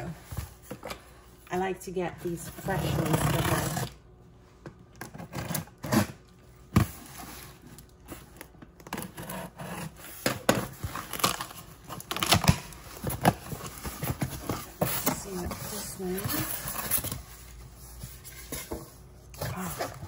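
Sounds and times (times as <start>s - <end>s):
packing tape tearing: 5.0s - 6.2s, 7.8s - 17.3s.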